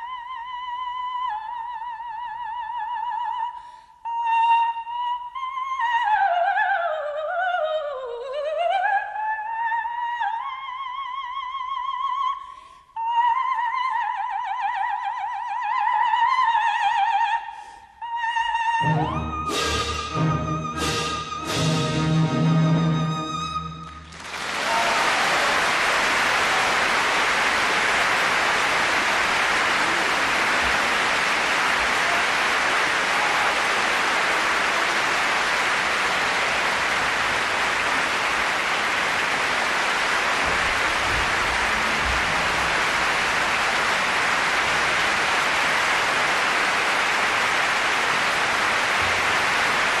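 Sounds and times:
audience applauding: 23.8s - 50.0s.

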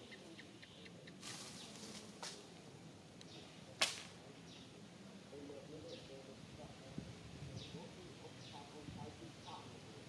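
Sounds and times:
faint outdoor ambience: 0.0s - 10.0s
sharp snap: 3.8s - 4.2s.

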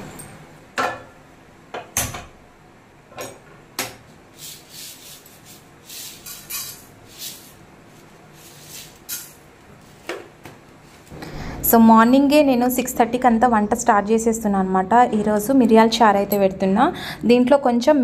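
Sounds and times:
seeds sprinkled into frying pan: 4.4s - 10.0s
kitchen utensils clinking: 4.9s - 7.6s, 8.4s - 9.5s.

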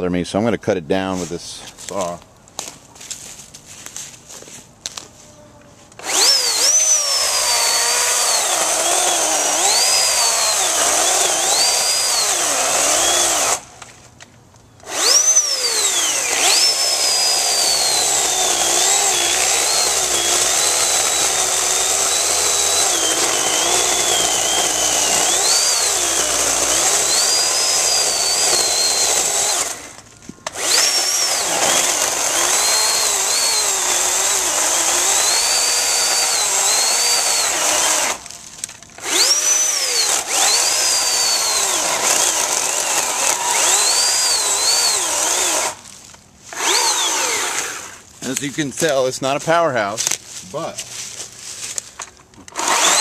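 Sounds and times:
electric chainsaw cutting wood: 6.0s - 13.7s, 14.8s - 45.9s, 46.5s - 48.5s, 52.4s - 53.0s.

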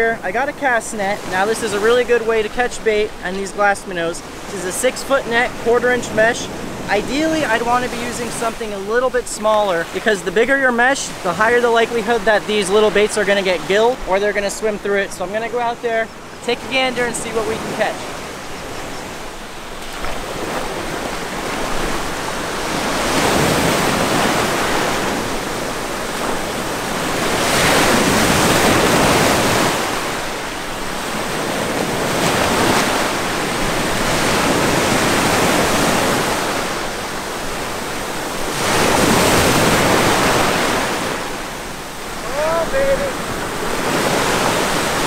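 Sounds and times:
ocean surf breaking on beach: 0.0s - 45.0s.

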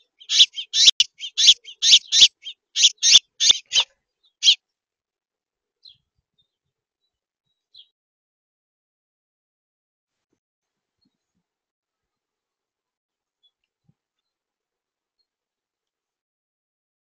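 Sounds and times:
songbird chirping: 0.0s - 4.8s, 5.8s - 8.0s.

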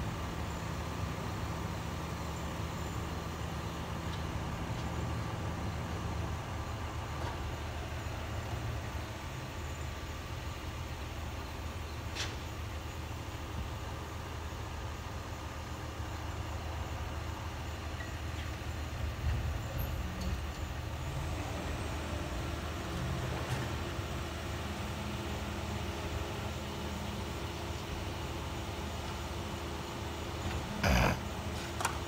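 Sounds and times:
faint hum: 29.8s - 31.9s.

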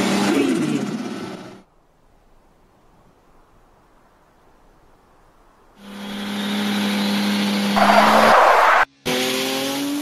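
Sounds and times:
engine accelerating: 5.8s - 10.0s
race car engine revving: 6.1s - 10.0s
tyre screech: 7.8s - 8.9s.

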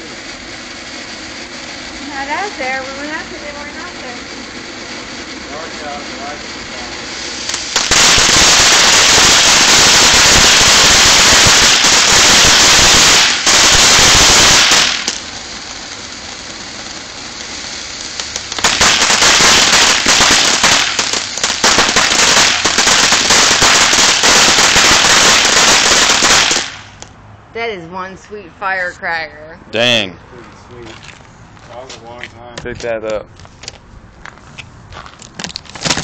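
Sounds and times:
firework spraying sparks hissing: 0.0s - 27.1s
firework crackling pops: 0.0s - 27.2s, 34.6s - 36.0s.

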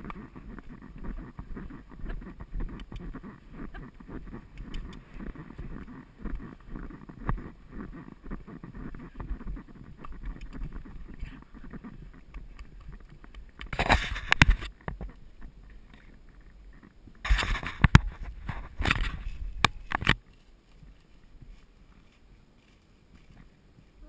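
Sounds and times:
horse hoofbeats on dirt track: 0.0s - 13.5s.

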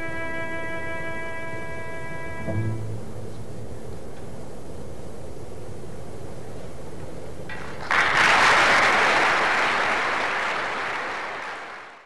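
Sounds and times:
audience applause: 7.5s - 12.0s.

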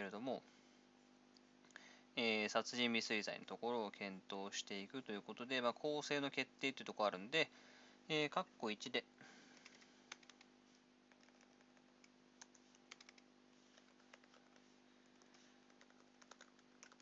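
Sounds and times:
faint steady hum: 0.0s - 17.0s
computer keyboard keystrokes: 9.6s - 10.5s, 11.1s - 13.2s, 13.8s - 17.0s.

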